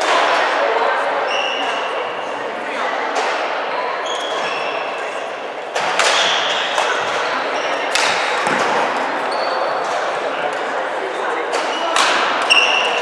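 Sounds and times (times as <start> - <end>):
shoe squeaks on wooden court: 1.3 - 1.9, 4.0 - 5.2, 9.2 - 9.8, 11.6 - 13.0
racket hitting shuttlecock: 5.7 - 7.2, 7.9 - 9.0, 11.5 - 12.9.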